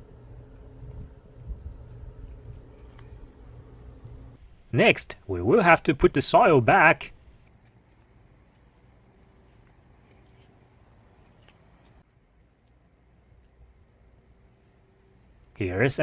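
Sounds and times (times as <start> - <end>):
faint insect chirping: 2.7 - 6.2, 7.3 - 16.0.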